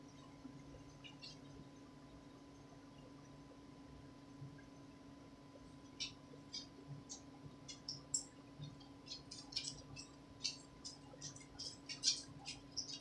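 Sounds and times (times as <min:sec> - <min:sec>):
steady low hum: 0:00.0 - 0:13.0
small animal squeaking: 0:06.0 - 0:13.0.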